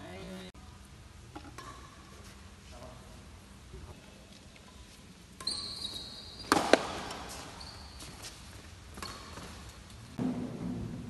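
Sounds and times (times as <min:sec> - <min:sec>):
shoes squeaking on court floor: 0:04.8 - 0:09.9
racket striking shuttlecock: 0:06.5 - 0:07.4.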